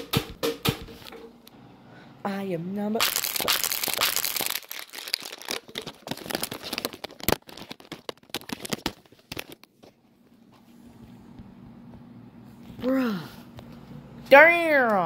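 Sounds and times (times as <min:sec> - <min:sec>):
crackles and knocks: 0:03.0 - 0:10.0.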